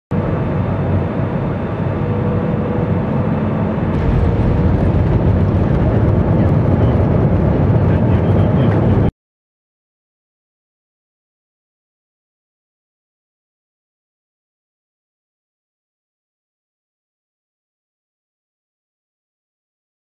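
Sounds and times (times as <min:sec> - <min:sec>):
jet engine and air noise in cabin: 0:00.1 - 0:09.1
plane rumbling along runway: 0:00.1 - 0:09.1.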